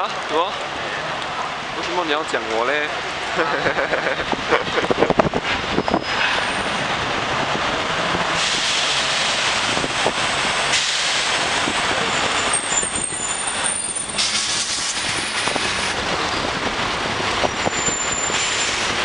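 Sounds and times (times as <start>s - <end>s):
traffic passing close by: 0.0s - 19.0s.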